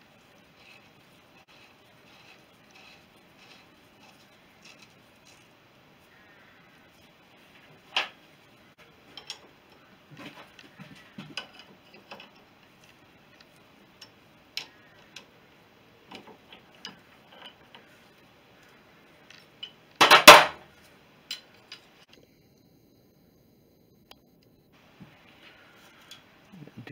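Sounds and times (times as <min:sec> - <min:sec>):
loud metallic clatter: 0:20.0 - 0:20.6.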